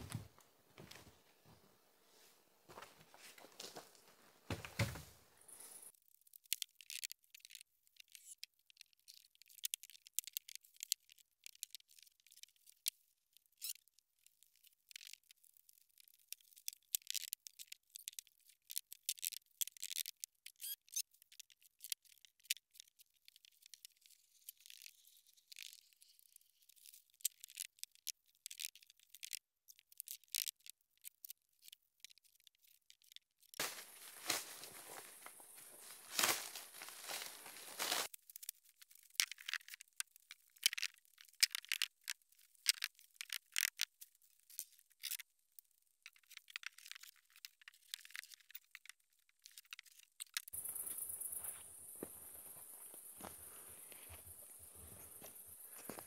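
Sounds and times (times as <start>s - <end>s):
plastic wrapping crackling: 33.6s - 38.1s.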